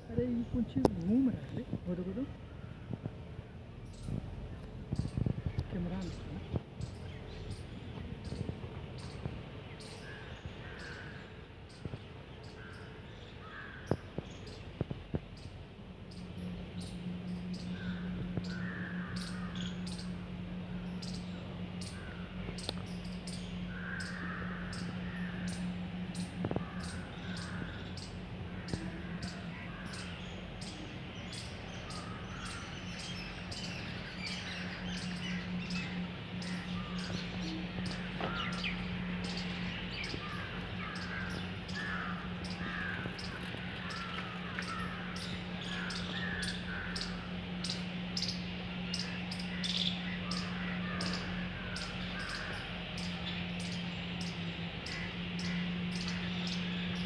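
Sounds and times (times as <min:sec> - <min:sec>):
birds chirping and calling: 0:00.0 - 0:57.0
steady low hum: 0:00.0 - 0:57.0.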